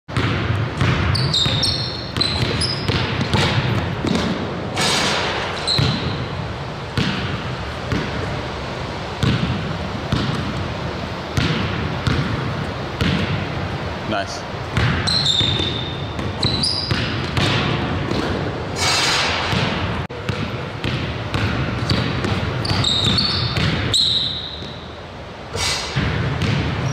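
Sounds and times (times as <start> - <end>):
basketball bouncing on hardwood: 0.1 - 4.4, 5.7 - 6.2, 9.2 - 10.5, 11.4 - 12.4, 14.8 - 18.4, 19.5 - 23.9, 26.0 - 26.8
sneakers squeaking: 0.1 - 13.7, 14.7 - 25.0, 25.6 - 26.9.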